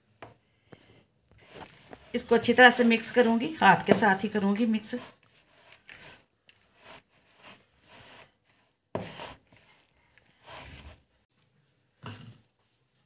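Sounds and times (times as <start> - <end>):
hand mixing dry food in bowl: 1.4 - 11.0.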